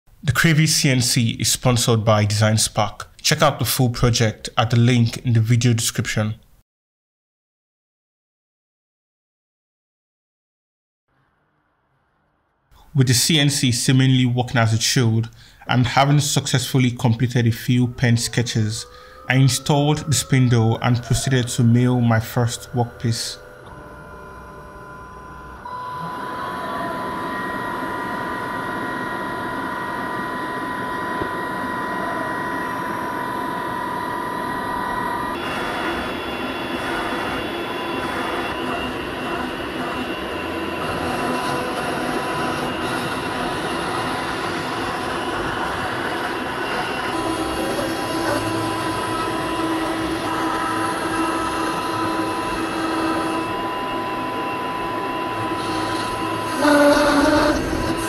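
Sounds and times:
high spindle whine: 12.9s - 58.0s
end mill cutting wood: 32.5s - 58.0s.

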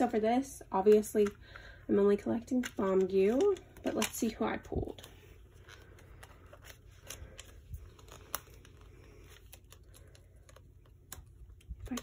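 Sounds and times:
plastic case clicks and paper rustling: 2.4s - 5.1s.

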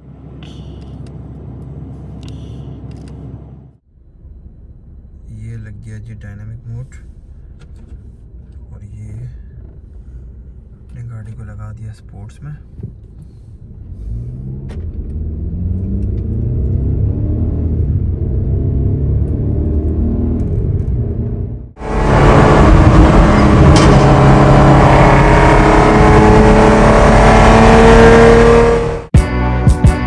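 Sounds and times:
car exhaust cruising on highway: 12.6s - 29.1s
car engine accelerating: 12.9s - 29.1s.

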